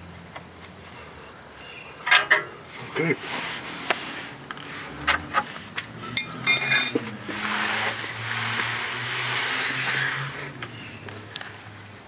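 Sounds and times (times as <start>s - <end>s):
metal tools clinking on pipe: 6.1s - 7.1s.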